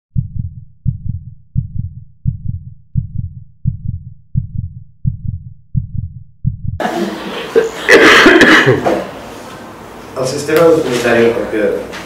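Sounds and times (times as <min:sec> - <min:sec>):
heartbeat thumps: 0:00.1 - 0:06.8.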